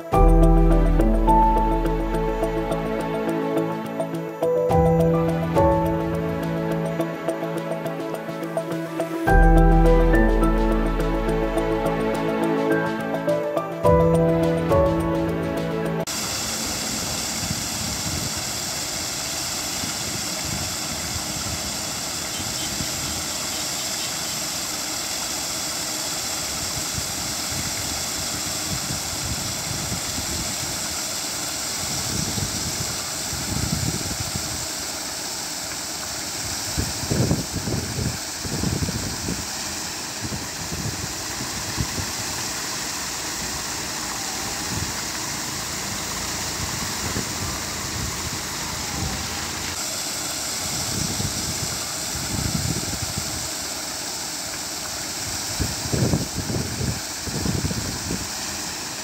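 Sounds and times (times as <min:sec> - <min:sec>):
mechanical running note: 0:00.0 - 0:18.2.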